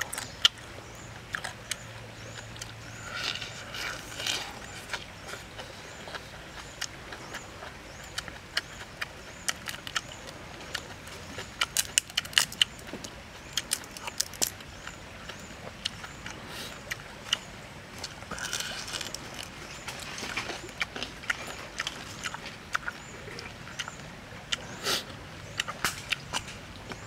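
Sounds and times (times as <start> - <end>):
crunching rustle: 0.0 - 27.0
shrimp shell cracking: 11.6 - 12.8, 13.6 - 14.6, 18.3 - 20.4.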